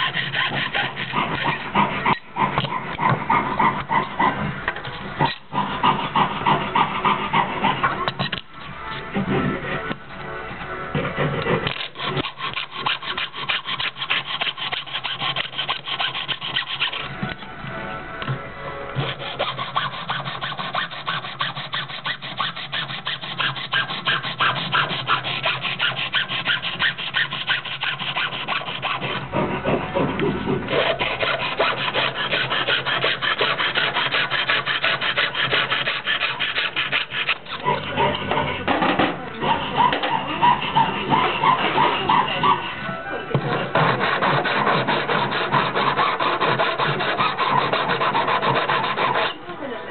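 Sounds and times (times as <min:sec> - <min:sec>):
jeweler's saw cutting: 0:00.0 - 0:08.4, 0:11.0 - 0:17.1, 0:19.0 - 0:42.8, 0:43.4 - 0:49.4.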